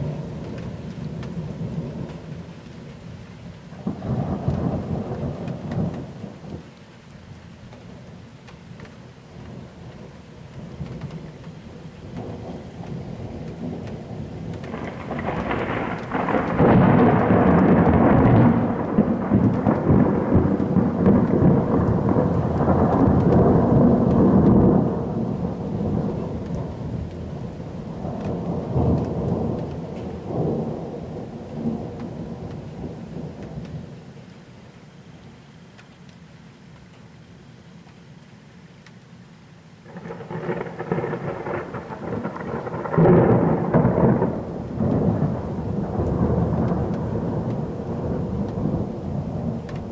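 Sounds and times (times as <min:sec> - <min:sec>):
rain falling: 0:00.0 - 0:49.9
thunder rolling: 0:03.7 - 0:06.6, 0:09.4 - 0:34.2, 0:39.8 - 0:49.9.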